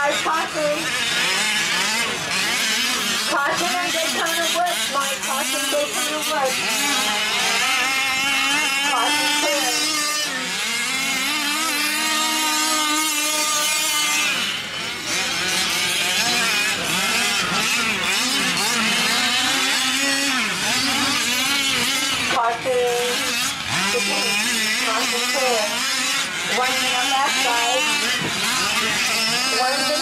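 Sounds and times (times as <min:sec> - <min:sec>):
small two-stroke engines revving: 0:00.0 - 0:30.0.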